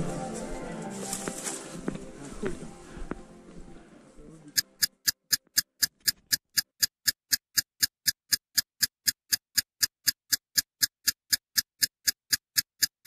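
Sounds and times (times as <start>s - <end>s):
ticking clicks: 4.6s - 13.0s.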